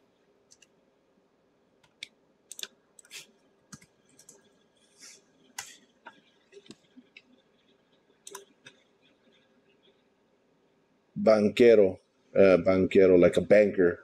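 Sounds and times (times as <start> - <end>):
keyboard keystroke clicks: 8.3 - 8.8.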